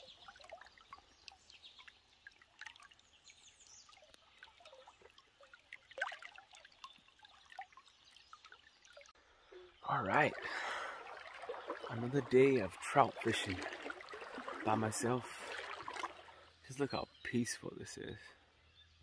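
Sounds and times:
creek gurgling and trickling: 0.0 - 18.8.

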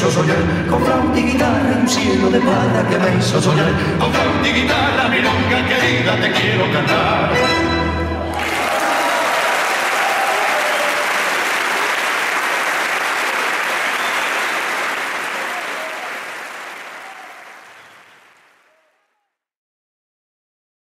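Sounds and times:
audience applauding: 8.2 - 19.3.

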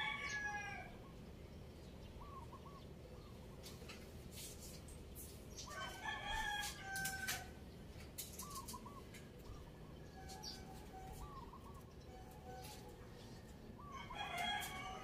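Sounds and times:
rooster crowing: 0.0 - 1.0, 5.7 - 7.6, 13.8 - 15.0.

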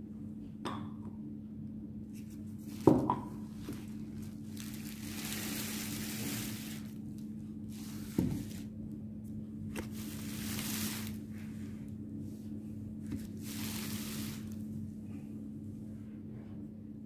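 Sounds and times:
rustling handling noise: 2.1 - 14.7.

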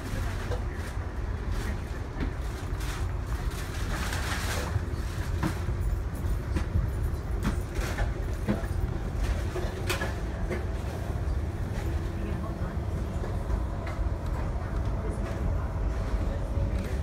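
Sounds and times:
train car low rumble: 0.0 - 17.0.

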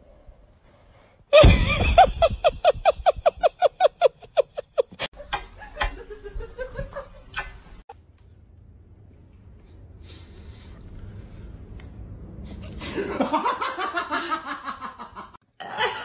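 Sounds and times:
person laughing: 1.4 - 7.5.

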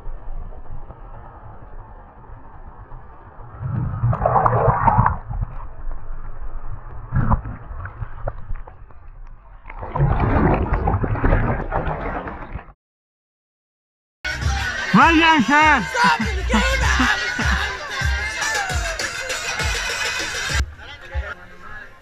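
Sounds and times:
muffled sea water sloshing: 3.1 - 12.8
water splash: 3.4 - 9.0, 9.6 - 12.8.

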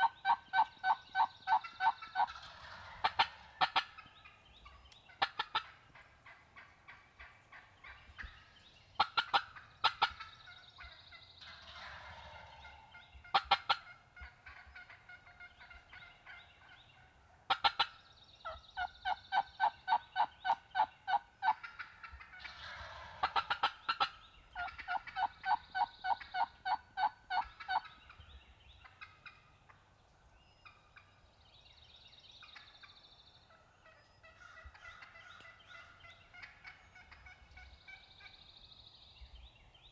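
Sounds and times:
rapid turkey yelps: 0.0 - 4.2, 5.1 - 8.4, 9.0 - 28.2, 33.5 - 38.4
turkeys gobbling: 0.0 - 28.2, 28.8 - 29.9, 32.4 - 38.4.

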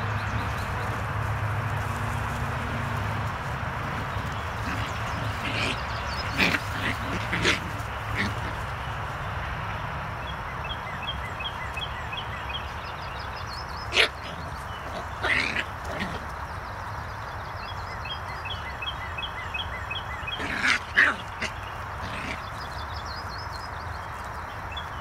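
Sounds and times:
puppies yipping: 3.8 - 8.8, 13.8 - 16.3, 20.2 - 22.9.

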